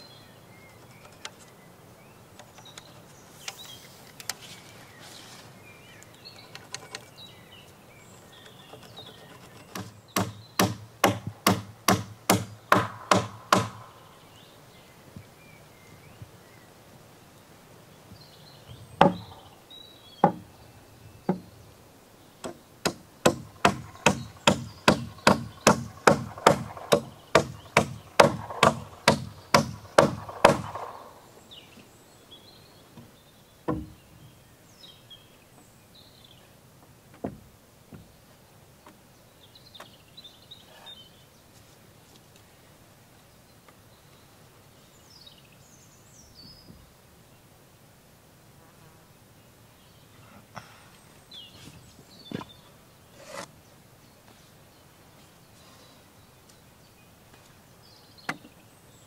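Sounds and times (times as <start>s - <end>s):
hammer driving nails into timber: 9.5s - 13.9s, 19.0s - 19.4s, 22.4s - 31.0s.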